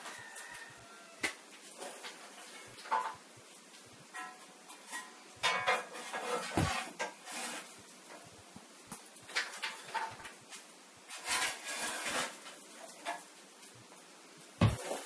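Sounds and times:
plastic bottles rustling and knocking: 4.2s - 8.2s, 14.6s - 15.0s.

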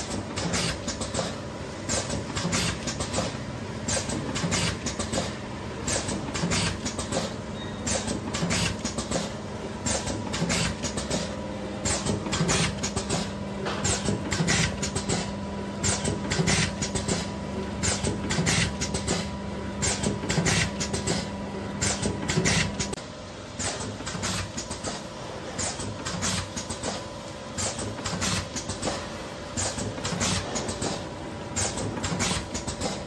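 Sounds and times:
steady machine hum: 0.0s - 33.0s
packing machine jaws clacking: 25.6s - 33.0s.

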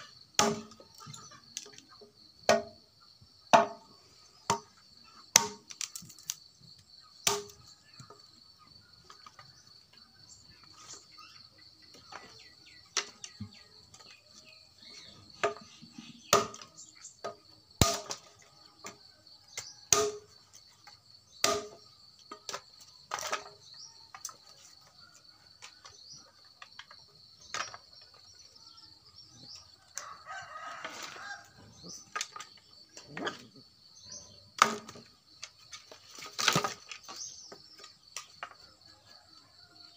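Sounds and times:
knife chopping dry branches: 5.4s - 6.3s, 7.3s - 7.6s, 19.9s - 20.2s.

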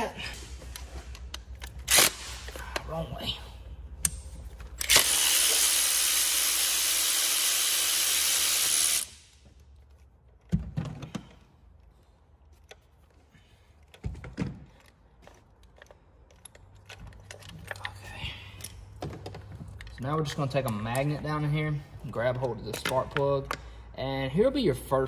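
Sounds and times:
cordless electric ratchet running: 4.8s - 9.2s.

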